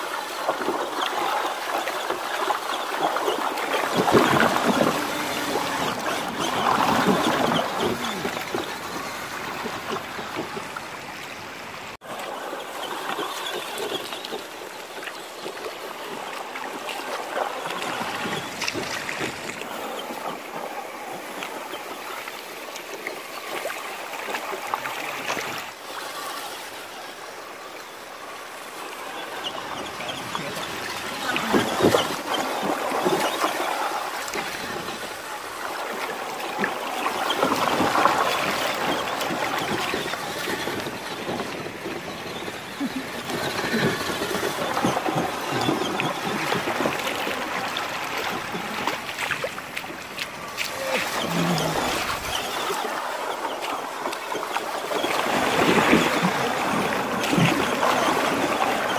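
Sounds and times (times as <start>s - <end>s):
river rushing over stones: 0.0s - 58.9s
water splashing: 0.0s - 58.9s.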